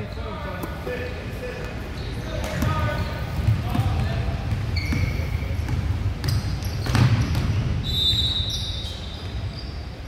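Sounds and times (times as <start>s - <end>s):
sneakers squeaking: 0.0s - 10.0s.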